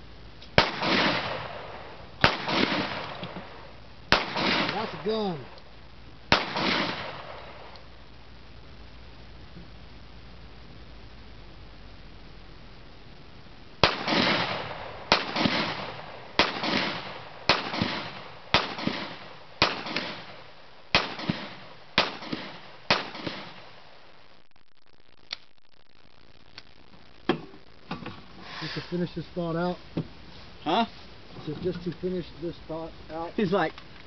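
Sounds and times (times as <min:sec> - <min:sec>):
gunshots with ringing echo: 0:00.6 - 0:05.5, 0:06.3 - 0:07.7, 0:13.8 - 0:23.7.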